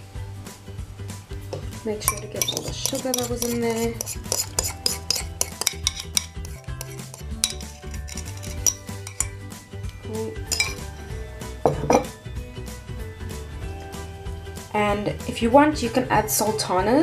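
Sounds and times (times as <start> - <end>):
metal utensil scraping bowls: 2.0 - 11.1.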